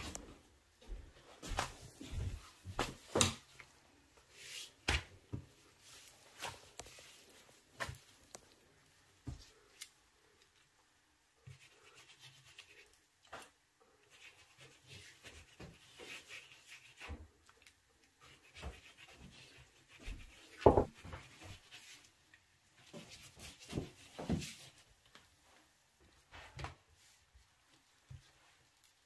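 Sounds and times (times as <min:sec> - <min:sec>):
pastry brush wet brushing: 0:11.4 - 0:25.6.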